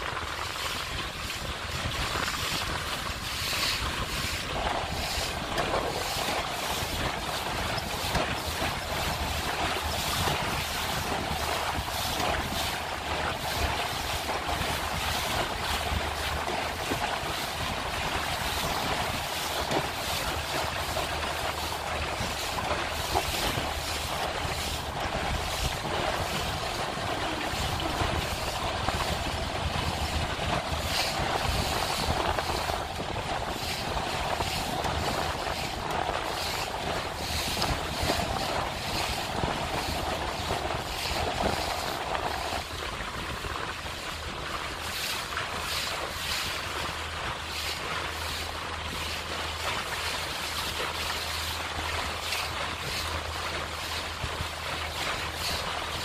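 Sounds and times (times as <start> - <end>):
outboard motor drone: 0.0 - 56.0
water rushing along hull: 0.0 - 56.0
wind buffeting microphone: 0.0 - 56.0.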